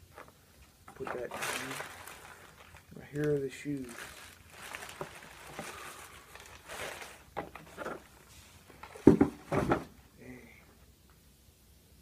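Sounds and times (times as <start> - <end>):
paper wrapping rustling: 0.9 - 9.8.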